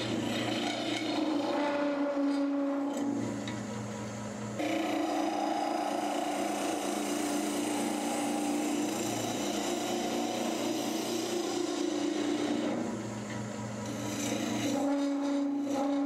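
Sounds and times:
turning tool scraping wood: 0.0 - 3.1, 4.7 - 13.0, 13.8 - 16.0
wood lathe humming: 0.0 - 16.0.

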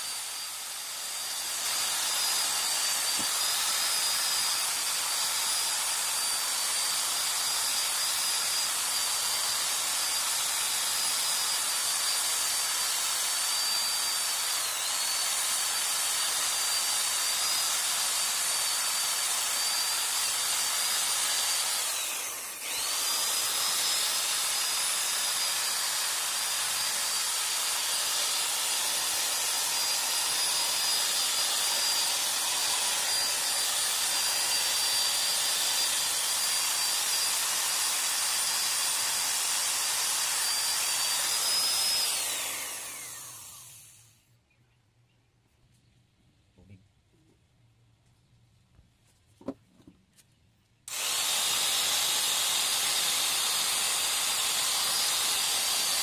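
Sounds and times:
power drill buffing plastic: 0.0 - 44.2, 50.9 - 56.0.

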